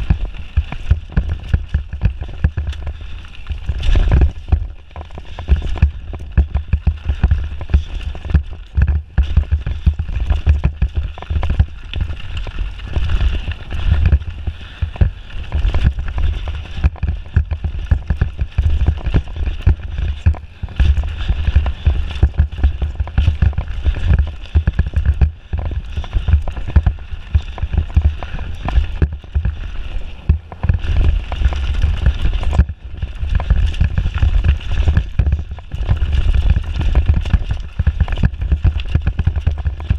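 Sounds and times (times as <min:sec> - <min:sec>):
bike knocks and rattles: 0:00.0 - 0:39.9
tyre noise on dirt: 0:00.0 - 0:39.9
wind buffeting microphone: 0:00.0 - 0:39.9.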